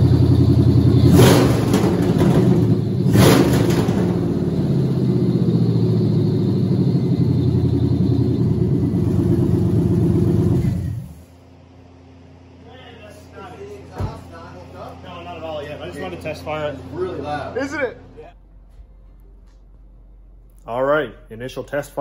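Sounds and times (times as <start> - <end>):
loud engine revving and idling: 0.0 - 11.3.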